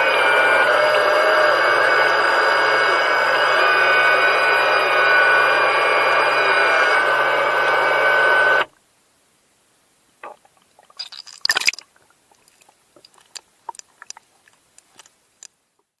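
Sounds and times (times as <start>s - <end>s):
underwater electric whine: 0.0s - 8.7s
water splashing and dripping: 10.2s - 15.5s.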